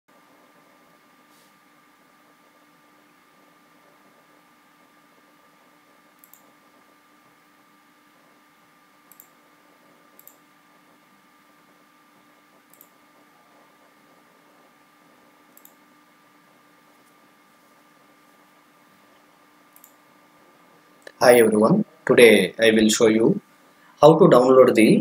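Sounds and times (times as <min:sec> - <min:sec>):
low hiss and hum: 0:00.1 - 0:25.0
computer mouse clicks: 0:06.2 - 0:06.5, 0:09.1 - 0:09.4, 0:10.1 - 0:10.4, 0:12.7 - 0:13.0, 0:15.5 - 0:15.8, 0:19.7 - 0:20.0.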